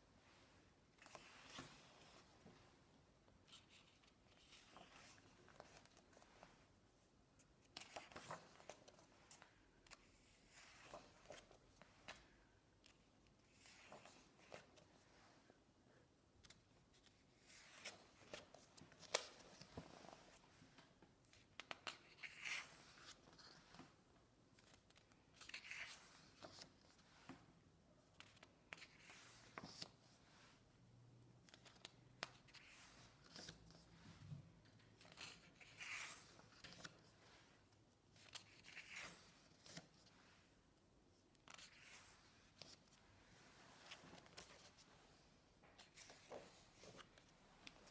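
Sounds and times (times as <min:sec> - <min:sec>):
paper pages turning: 0:07.6 - 0:12.2, 0:16.4 - 0:23.8, 0:35.0 - 0:37.2.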